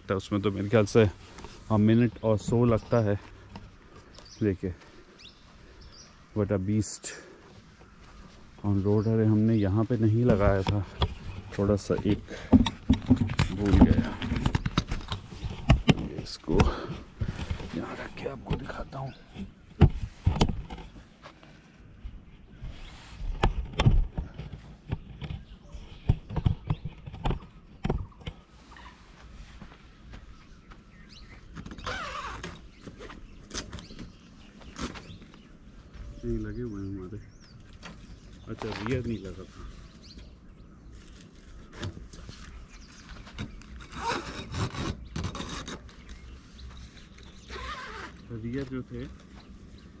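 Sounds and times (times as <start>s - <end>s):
fabric rubbing and scraping: 22.6s - 23.4s.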